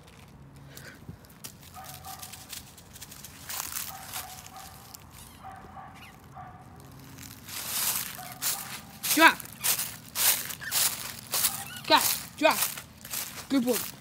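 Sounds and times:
footsteps crunching dry leaves: 0:00.0 - 0:14.0
dog barking faintly: 0:08.0 - 0:08.9, 0:11.4 - 0:11.9.

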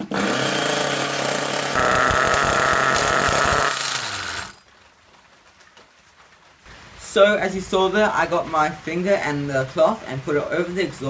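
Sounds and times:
model car engine running: 0:00.0 - 0:04.6.

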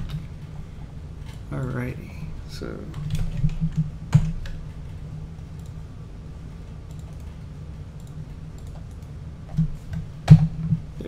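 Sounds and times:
steady low hum: 0:00.0 - 0:11.0
keyboard and mouse clicks: 0:02.9 - 0:04.8, 0:06.8 - 0:07.4, 0:08.0 - 0:10.8.

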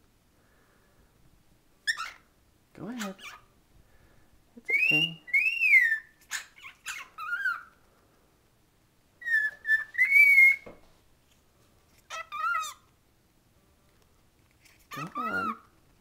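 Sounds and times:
cockatiel whistling: 0:04.7 - 0:07.7, 0:09.2 - 0:10.7.

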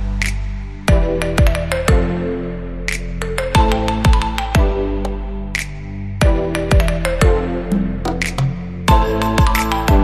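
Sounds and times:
kick drum beat: 0:00.9 - 0:02.1, 0:03.6 - 0:04.8, 0:06.2 - 0:07.4, 0:08.9 - 0:10.0
light high percussion: 0:05.6 - 0:10.0.

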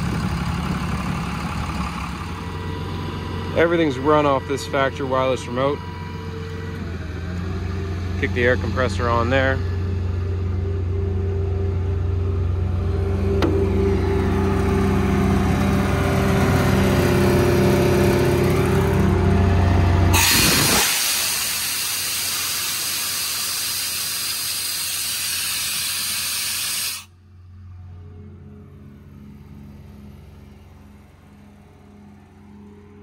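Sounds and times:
air compressor humming: 0:13.1 - 0:27.1
compressed air hissing: 0:20.2 - 0:27.1.

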